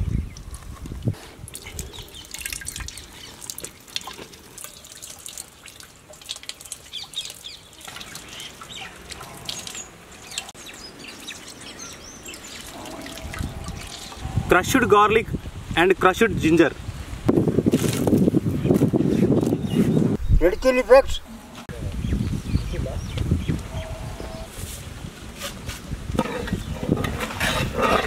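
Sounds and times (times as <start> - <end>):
juice dripping into metal pot: 1.4 - 10.5.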